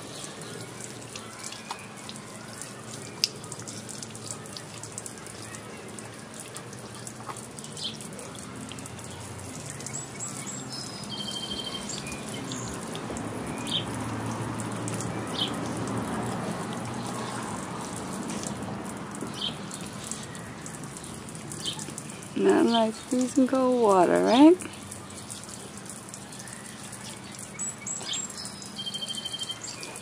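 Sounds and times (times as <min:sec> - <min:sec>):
sprinkler spraying onto pavement: 0:00.0 - 0:30.0
bird chirps: 0:09.8 - 0:12.8, 0:26.4 - 0:30.0.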